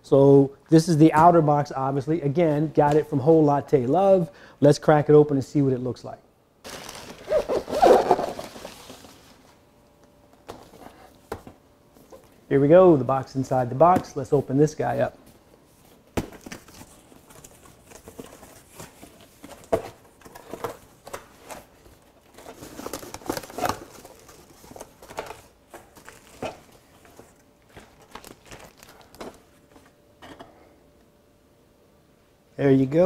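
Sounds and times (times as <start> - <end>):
packing rustling and crinkling: 6.6 - 9.6, 15.9 - 29.9
cardboard box being opened: 6.7 - 9.4.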